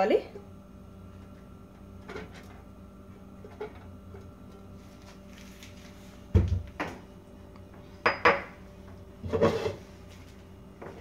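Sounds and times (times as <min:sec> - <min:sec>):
faint steady hum: 0:00.0 - 0:11.0
kitchenware knocking and clattering: 0:08.0 - 0:08.6.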